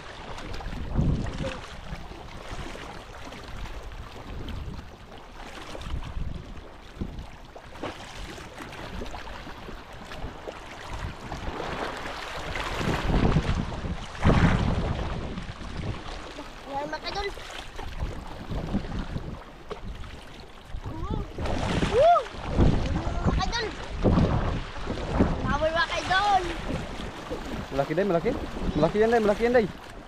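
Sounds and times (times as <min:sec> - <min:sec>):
water lapping around boat: 0:00.0 - 0:30.0
wind gusting over microphone: 0:00.6 - 0:02.8, 0:10.9 - 0:17.3, 0:17.9 - 0:29.8.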